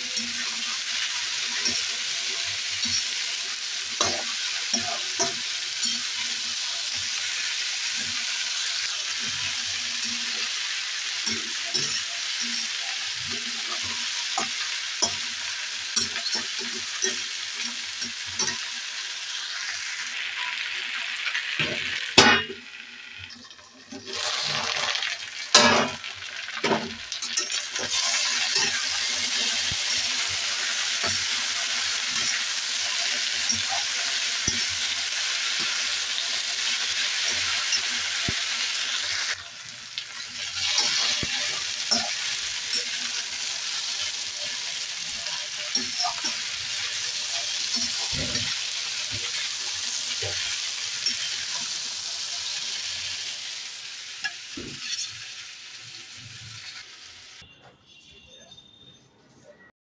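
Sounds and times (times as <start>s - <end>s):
spatula scraping and clinking pan: 0.0s - 19.0s, 23.3s - 39.4s, 40.2s - 52.6s, 54.2s - 55.4s
okra sizzling in hot oil: 0.0s - 57.4s.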